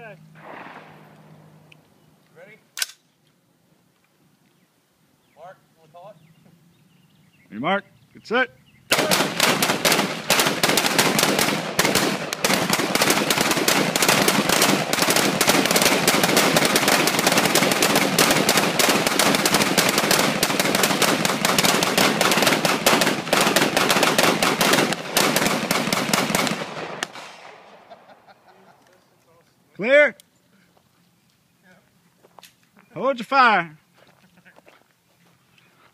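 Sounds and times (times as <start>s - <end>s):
assault rifles firing rapidly: 8.9s - 27.7s.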